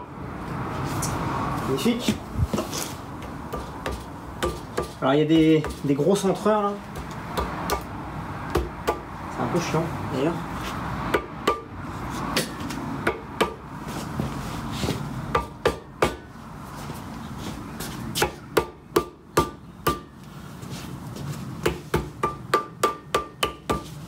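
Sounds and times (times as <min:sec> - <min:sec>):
hammer knocking on metal: 0:03.5 - 0:05.8, 0:21.6 - 0:23.9.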